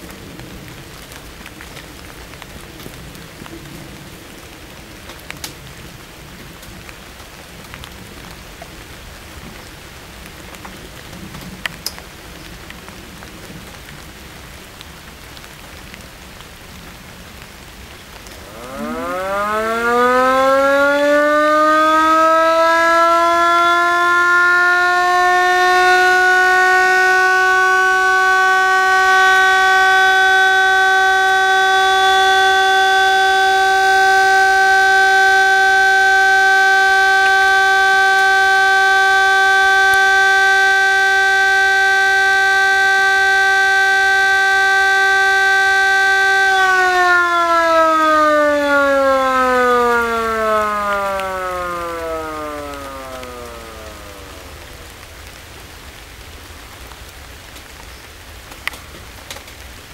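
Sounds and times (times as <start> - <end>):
electric motor siren wailing: 18.4 - 55.4.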